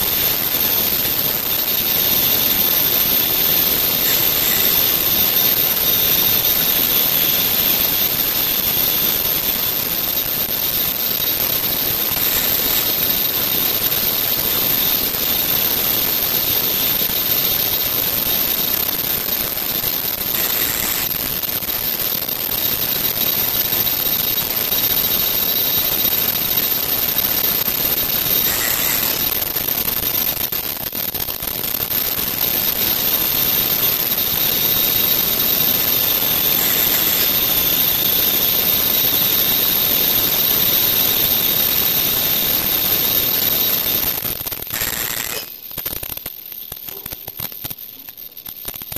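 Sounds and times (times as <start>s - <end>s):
constant high tone: 0.0s - 8.7s, 17.3s - 30.0s, 46.5s - 48.6s
machine hissing with high whine: 0.0s - 48.9s.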